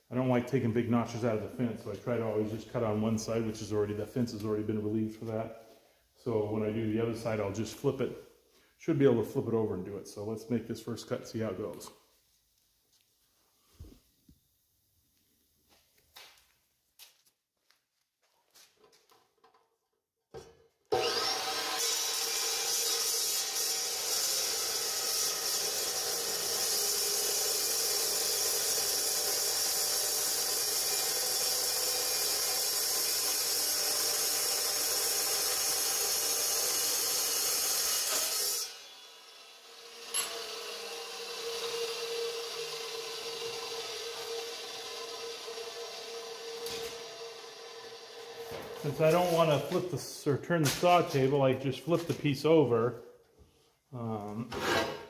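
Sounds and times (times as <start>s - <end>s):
chop saw cutting steel: 20.9s - 49.8s.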